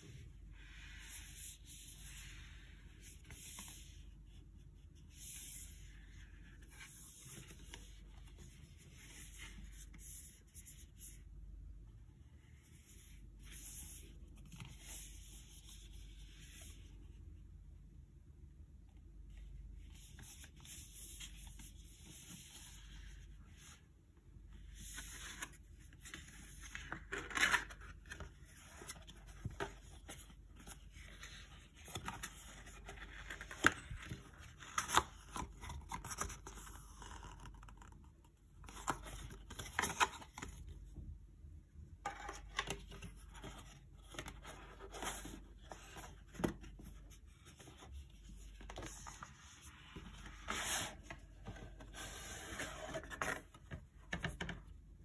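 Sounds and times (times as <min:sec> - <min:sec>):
paper and card rustling: 0:24.7 - 0:38.0, 0:42.0 - 0:54.5.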